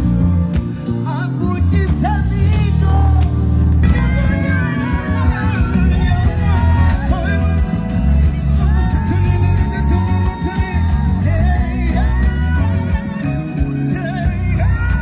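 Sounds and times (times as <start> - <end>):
loud amplified music with bass: 0.0 - 15.0
man singing into a microphone: 0.8 - 15.0.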